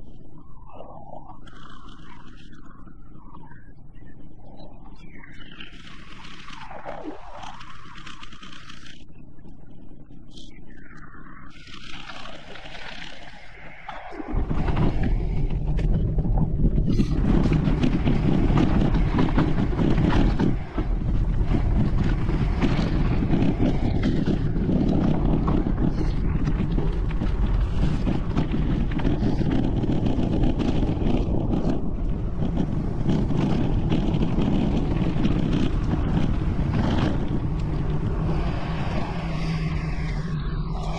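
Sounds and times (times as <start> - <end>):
wind buffeting microphone: 11.5 - 40.9.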